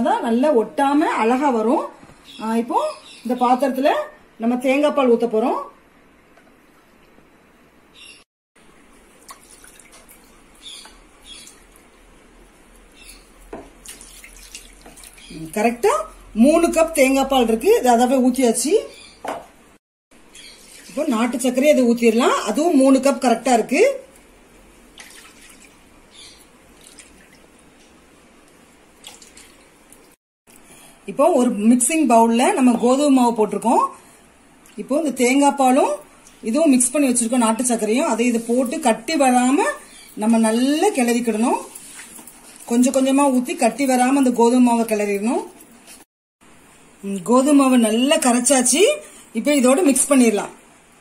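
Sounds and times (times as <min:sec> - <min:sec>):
liquid trickling and splashing: 0:08.8 - 0:11.9, 0:13.7 - 0:15.4, 0:20.4 - 0:21.1, 0:24.9 - 0:27.9, 0:28.9 - 0:30.2.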